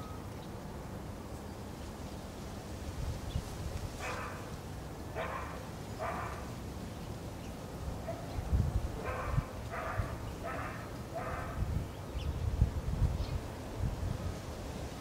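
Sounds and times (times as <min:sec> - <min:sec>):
distant dog barking: 0:04.0 - 0:04.5, 0:05.1 - 0:06.5, 0:08.0 - 0:08.4, 0:09.0 - 0:11.7.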